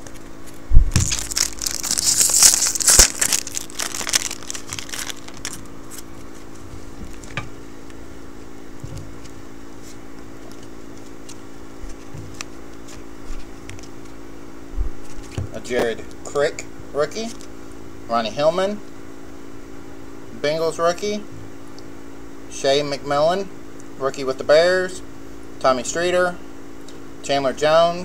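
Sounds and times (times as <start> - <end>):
foil wrapper crinkling: 0.0 - 6.5.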